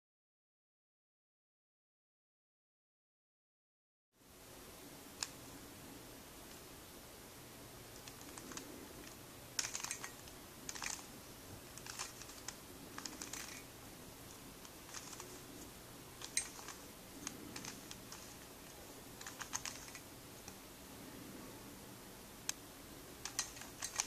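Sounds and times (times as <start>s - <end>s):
plastic puzzle cube clicking: 8.0s - 8.7s, 9.6s - 11.1s, 11.8s - 13.7s, 14.8s - 15.4s, 16.2s - 18.3s, 19.2s - 20.0s, 23.2s - 24.0s.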